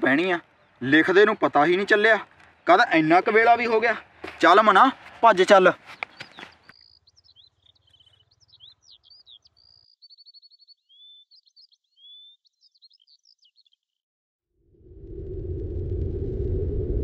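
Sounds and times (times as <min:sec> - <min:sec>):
birds chirping and trilling: 0:00.0 - 0:14.0
low rumble: 0:14.6 - 0:17.0.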